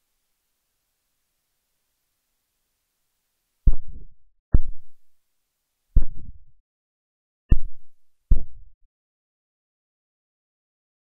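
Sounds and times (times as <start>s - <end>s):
dull thumps: 7.5s - 8.6s.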